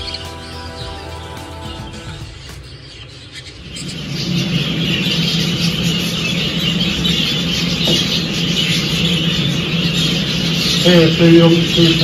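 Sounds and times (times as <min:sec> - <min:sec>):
quiet music: 0:00.0 - 0:03.2
budgerigars chattering and chirping: 0:00.0 - 0:12.0
steady low hum: 0:00.0 - 0:12.0.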